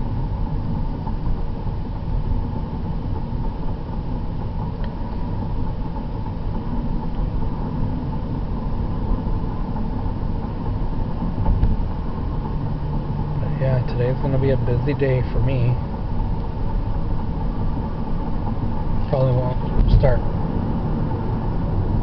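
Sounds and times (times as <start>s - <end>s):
car engine and tyre noise: 0.0s - 22.0s.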